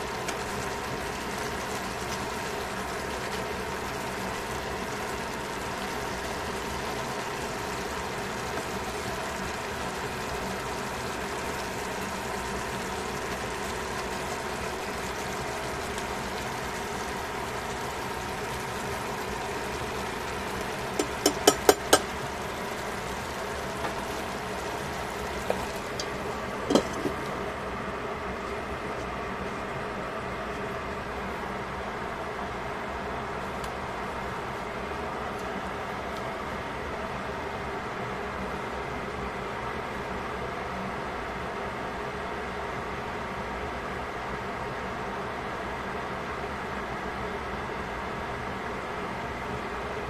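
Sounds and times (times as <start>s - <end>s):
steady hum: 0.0s - 50.0s
pot lid clink: 21.0s - 22.0s, 26.7s - 27.2s
tongs clacking on metal pot: 21.0s - 22.1s.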